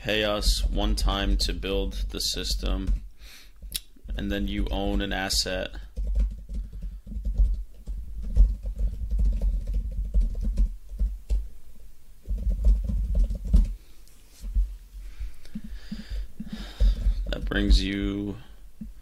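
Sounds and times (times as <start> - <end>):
computer keyboard typing: 5.7 - 11.4, 12.3 - 13.8.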